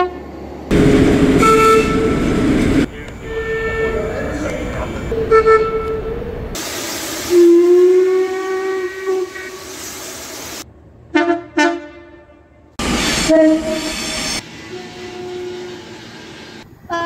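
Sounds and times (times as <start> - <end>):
short train horn toots: 0.0 - 2.4, 3.2 - 4.1, 13.2 - 13.9, 14.7 - 15.8
steam locomotive whistle: 0.0 - 2.4, 3.1 - 6.1, 7.2 - 9.8, 13.0 - 16.0
passing train horn: 0.0 - 6.3, 7.3 - 9.6, 11.1 - 13.9, 14.6 - 15.9
steam hissing: 6.6 - 10.6, 12.8 - 16.7.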